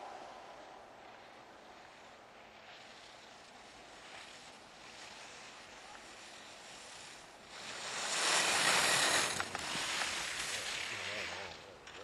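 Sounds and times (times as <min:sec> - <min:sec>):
skis scraping over snow: 0:00.0 - 0:12.0.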